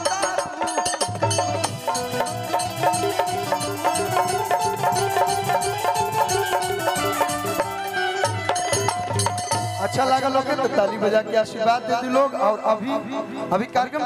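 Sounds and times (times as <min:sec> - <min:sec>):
quick percussion beat: 0:00.0 - 0:10.5
folk-style instrumental music: 0:00.0 - 0:13.9.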